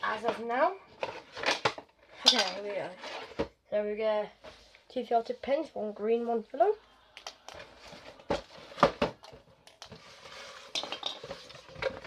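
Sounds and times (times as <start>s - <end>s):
packaging scraping and rustling: 7.7s - 12.0s.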